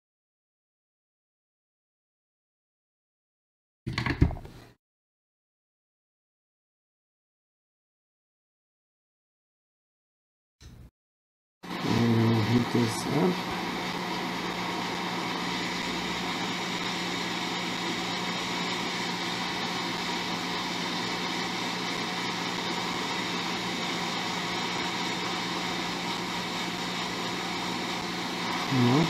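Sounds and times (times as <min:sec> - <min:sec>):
hot air blower hissing: 0:11.6 - 0:29.0.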